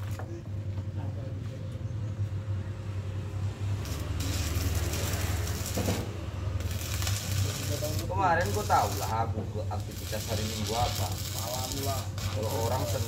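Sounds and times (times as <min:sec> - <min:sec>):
welding arc crackling and hissing: 0:03.7 - 0:13.0.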